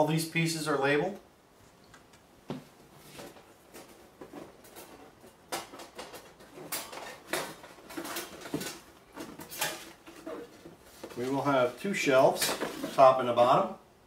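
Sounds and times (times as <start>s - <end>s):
cardboard scraping and rustling: 3.0s - 13.2s
wire shelves clattering: 3.4s - 13.2s.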